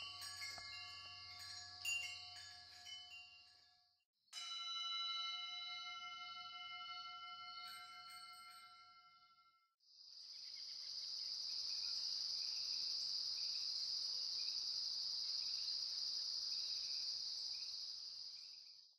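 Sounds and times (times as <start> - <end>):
crickets chirping: 0.0 - 3.2, 9.9 - 18.9
bell-like chime: 0.0 - 9.8.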